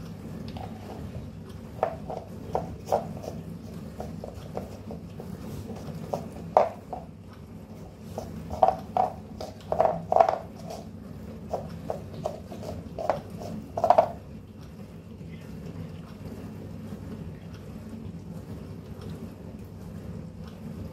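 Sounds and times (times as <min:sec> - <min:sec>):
cat licking a paper tub: 0:00.0 - 0:20.9
paper tub scraping on tiles: 0:00.5 - 0:07.1, 0:07.7 - 0:14.2.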